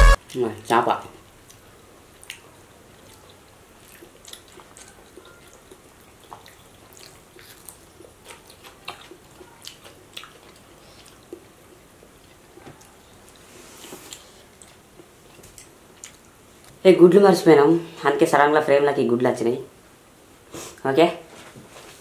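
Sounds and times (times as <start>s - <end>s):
soft chewing and mouth smacks: 0.2s - 16.8s.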